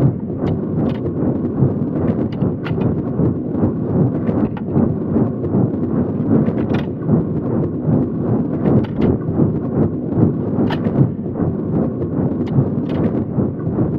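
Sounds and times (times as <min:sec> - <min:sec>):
train rumble: 0:00.0 - 0:13.9
metallic track clacks: 0:00.4 - 0:01.1, 0:02.3 - 0:03.0, 0:06.4 - 0:07.0, 0:08.6 - 0:09.2, 0:10.6 - 0:11.0, 0:12.4 - 0:13.2.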